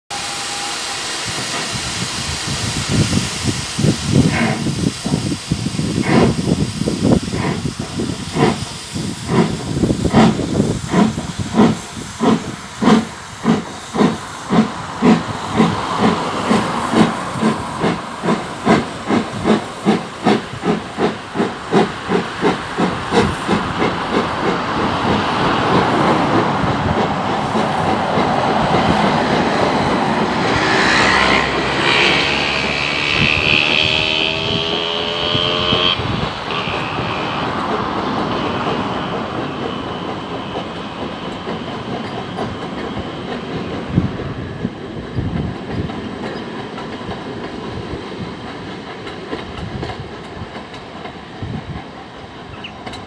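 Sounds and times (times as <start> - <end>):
steam hissing: 0.1 - 52.7
steam locomotive chuffing: 0.1 - 53.0
train coaches rolling: 0.1 - 53.0.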